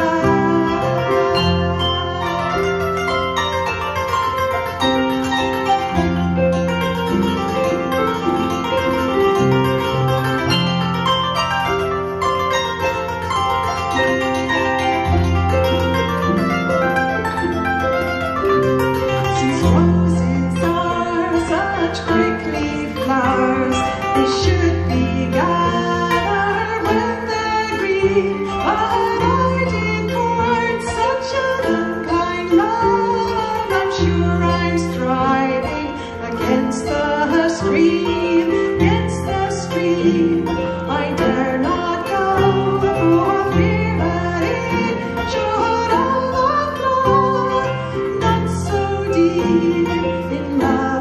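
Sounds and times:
woman singing folk song: 0.0 - 4.5, 19.1 - 51.0
plucked kora and harp: 0.0 - 51.0.

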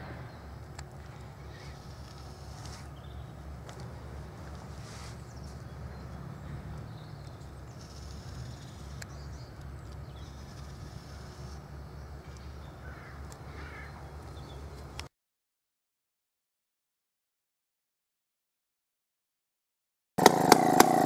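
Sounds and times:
chainsaw engine idling: 0.0 - 11.7, 20.2 - 21.0.

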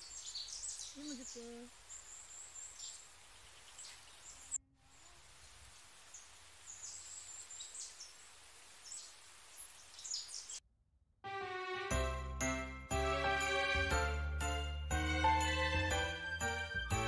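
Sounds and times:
small birds chirping: 0.0 - 10.6.

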